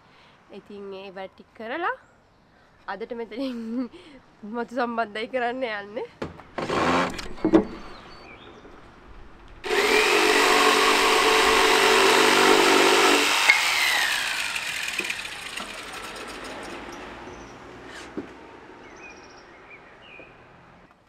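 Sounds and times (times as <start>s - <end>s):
power tool motor whine: 9.6s - 16.4s.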